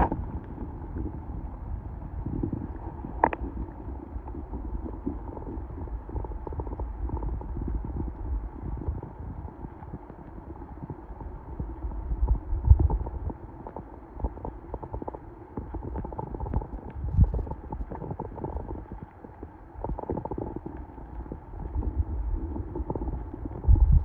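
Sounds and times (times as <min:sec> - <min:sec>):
muffled underwater river rush: 0:00.0 - 0:24.0.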